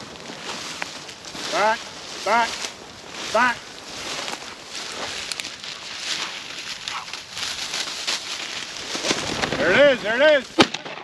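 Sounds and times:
footsteps through dry grass: 0.0 - 11.0
short calls: 1.4 - 4.0
shotgun shot: 10.6 - 11.0.

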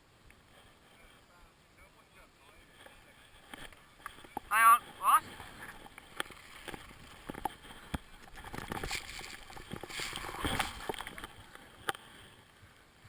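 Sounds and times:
clothing and snow rustling on camera: 0.4 - 13.0.

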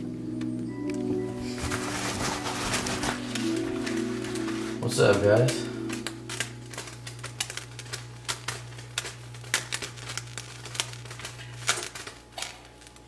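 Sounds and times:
light sizzle: 0.0 - 13.0
steady low hum: 0.0 - 13.0
bacon crackling and popping: 2.0 - 13.0.

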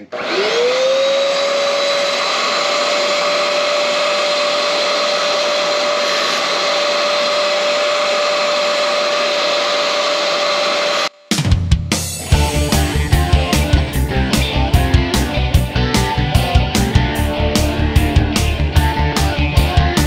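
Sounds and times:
vacuum motor whining: 0.0 - 11.1.

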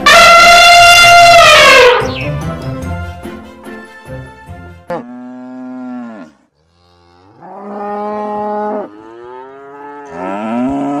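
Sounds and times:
cattle mooing: 4.9 - 11.0.

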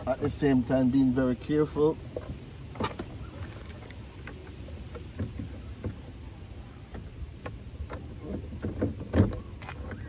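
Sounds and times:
faint clicks and light knocks: 6.8 - 10.0.

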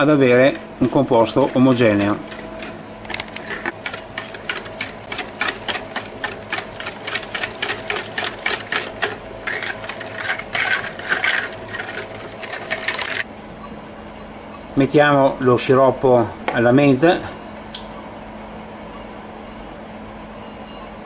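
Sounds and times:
whisk clicking against glass bowl: 3.7 - 13.2.

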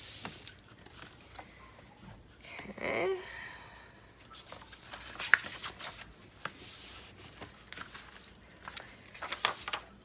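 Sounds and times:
paper rustling: 0.0 - 1.4, 4.3 - 10.0.

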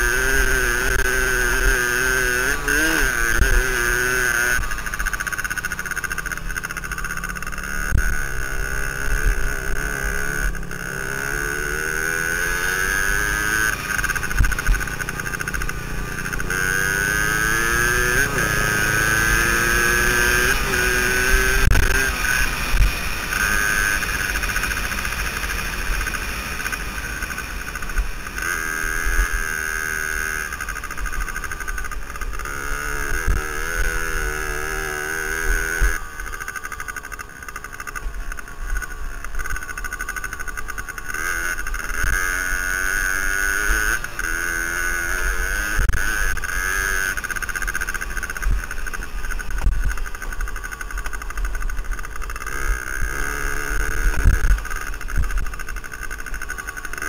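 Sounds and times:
two-stroke motorcycle engine revving: 0.0 - 57.0.

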